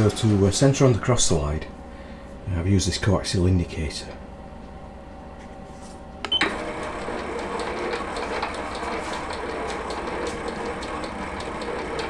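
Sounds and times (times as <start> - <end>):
lathe running: 6.4 - 12.0.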